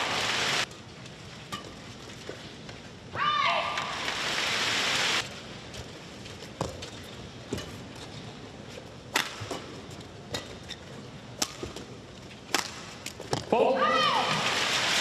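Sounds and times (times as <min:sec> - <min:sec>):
racket striking shuttlecock: 0:09.1 - 0:10.5, 0:11.4 - 0:11.8, 0:12.5 - 0:13.4.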